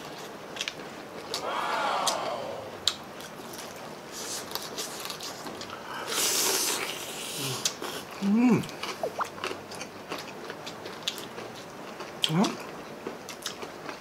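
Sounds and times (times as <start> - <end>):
person humming: 1.4 - 2.8
wet chewing and biting: 8.7 - 12.3.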